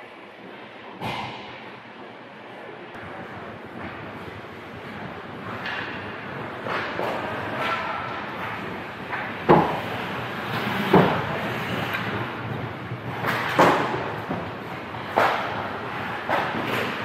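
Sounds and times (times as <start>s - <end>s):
puck and sticks knocking: 5.5s - 17.0s.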